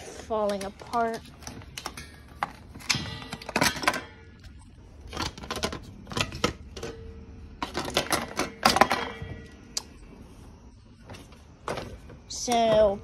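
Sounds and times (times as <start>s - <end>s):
loose bike parts rattling: 0.1s - 9.6s.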